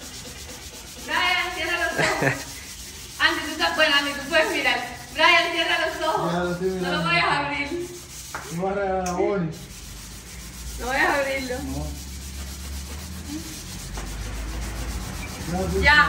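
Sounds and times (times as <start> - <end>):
sandpaper rubbing on wood: 0.0 - 16.0.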